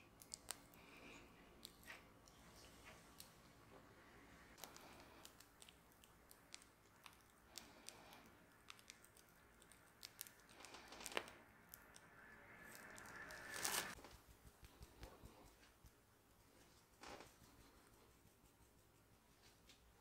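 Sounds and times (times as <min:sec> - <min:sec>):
piping bag crinkling and clicking: 0:00.1 - 0:00.9, 0:04.6 - 0:12.0.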